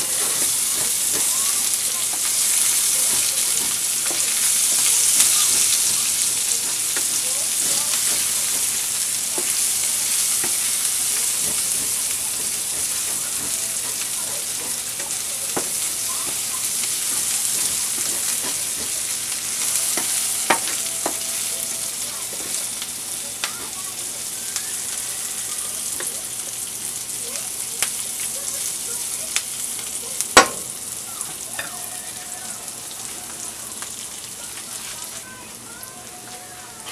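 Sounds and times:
utensil clicking against pan: 0.0 - 21.6
onion sizzling in oil: 0.0 - 36.9.

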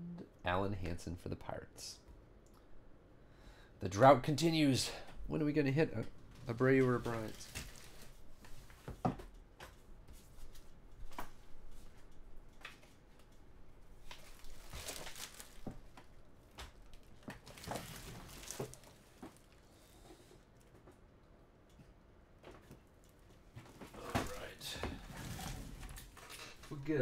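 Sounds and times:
trading cards rustling: 6.4 - 8.8, 14.1 - 15.8.

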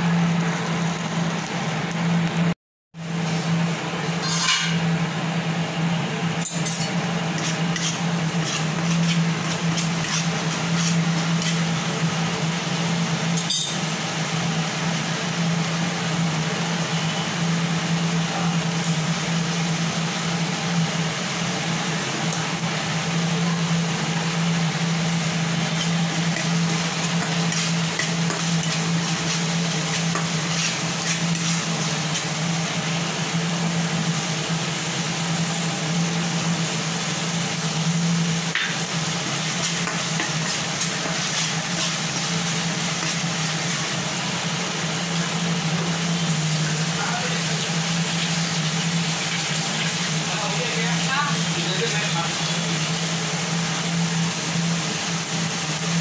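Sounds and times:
gravy sizzling in oil: 0.0 - 56.0
metal spatula scraping pan: 4.2 - 4.9, 6.5 - 11.7, 25.7 - 32.4.

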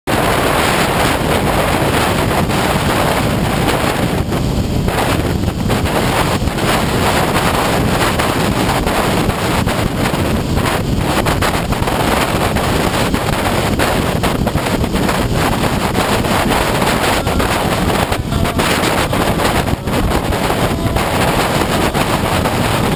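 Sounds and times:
wind buffeting microphone: 0.1 - 22.9.

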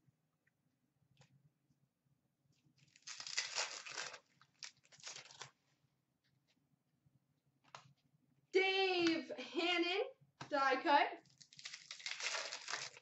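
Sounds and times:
wrapper crinkly tearing: 2.8 - 5.6, 11.2 - 13.0.

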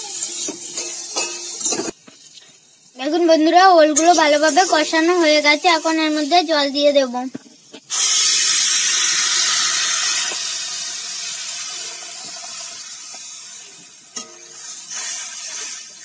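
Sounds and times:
water sizzling in hot oil: 0.0 - 16.0
spatula stirring in metal pan: 11.7 - 16.0.

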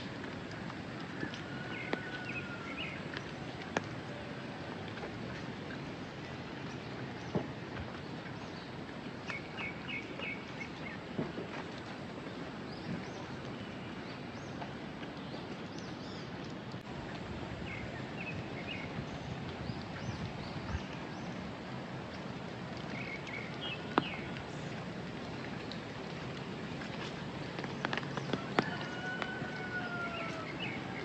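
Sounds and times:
steady rain falling: 0.0 - 31.0
birds chirping: 22.9 - 24.8, 27.7 - 31.0.

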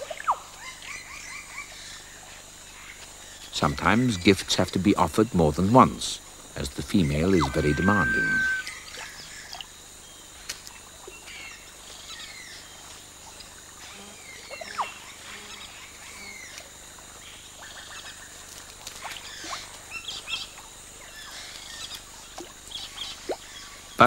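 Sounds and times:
marsh ambience: 3.5 - 8.7
birds chirping and whistling: 6.8 - 8.8.

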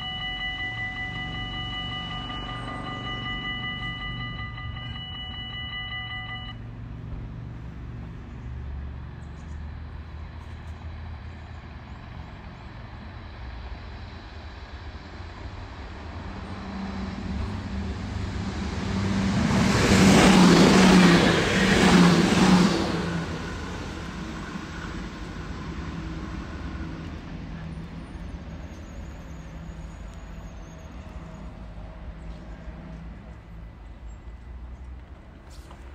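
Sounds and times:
level crossing bells ringing: 0.0 - 6.6
electric train passing: 0.0 - 8.1, 9.8 - 35.9.

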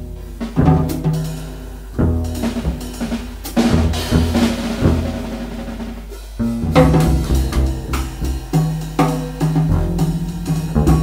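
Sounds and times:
jazz drum solo: 0.0 - 11.0
plucked double bass: 2.0 - 5.3, 6.4 - 11.0.

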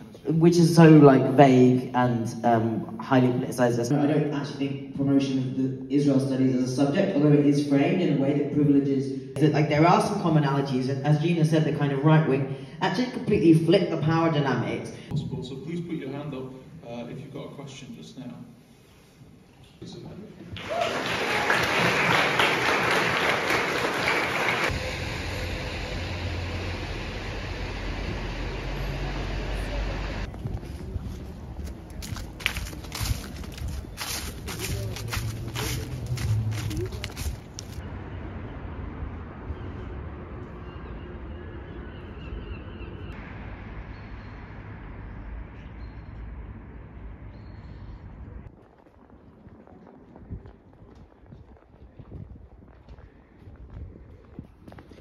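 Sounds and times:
audience clapping: 20.5 - 24.8
low street traffic rumble: 21.0 - 55.0
steady low rumble: 24.7 - 39.6
birds calling: 40.6 - 43.2.

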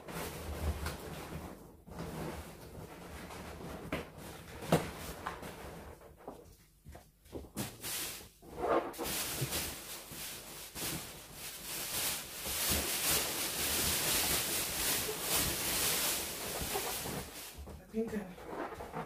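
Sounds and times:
balloons rubbing and bumping: 7.4 - 19.0.

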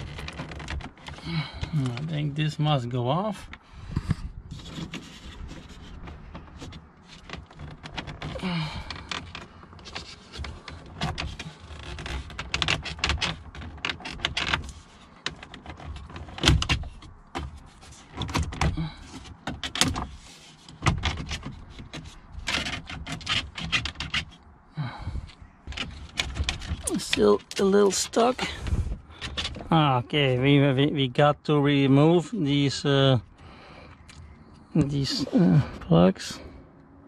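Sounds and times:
plastic panel clicking and creaking: 0.0 - 2.4, 3.3 - 29.8.

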